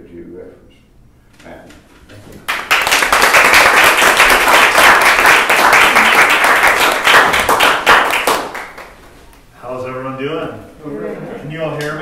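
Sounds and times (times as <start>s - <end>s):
small audience applauding: 2.4s - 9.3s.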